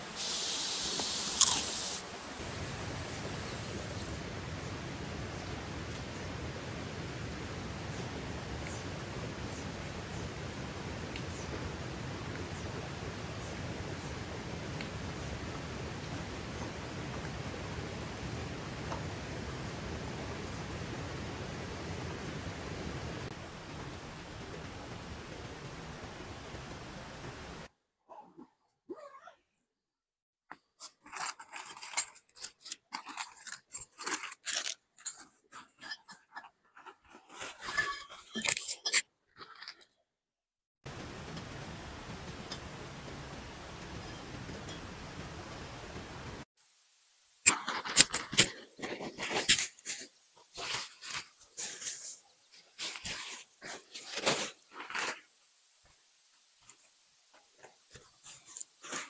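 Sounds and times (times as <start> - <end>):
plastic bags and fabric rustling: 48.5 - 55.3.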